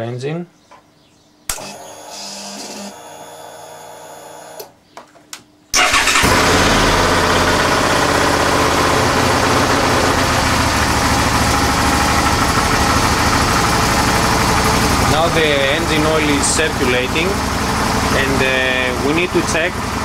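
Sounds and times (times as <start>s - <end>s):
motorcycle engine starting and idling: 5.7s - 20.0s.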